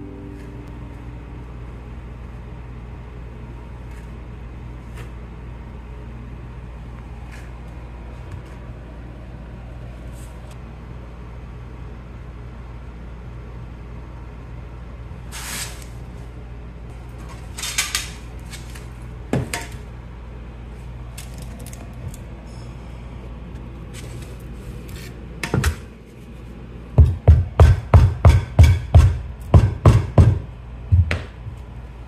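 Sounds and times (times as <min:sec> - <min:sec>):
steady low hum: 0:00.0 - 0:32.0
metal level laid on bricks: 0:17.1 - 0:19.9
rubber mallet thudding on pavers: 0:27.0 - 0:31.4.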